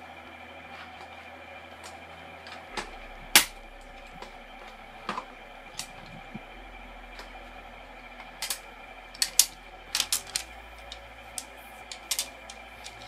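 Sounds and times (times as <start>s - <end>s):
plastic toy pieces clicking: 11.9s - 13.0s.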